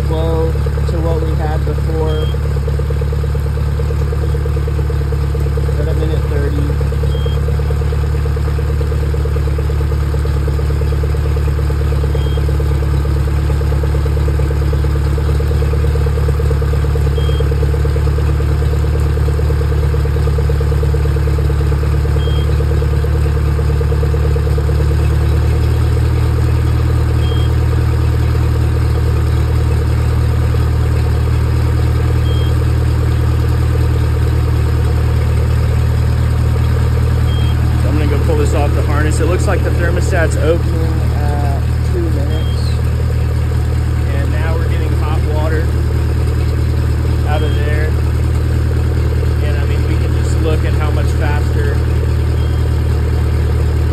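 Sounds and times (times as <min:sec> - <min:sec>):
outboard engine idling: 0:00.0 - 0:53.9.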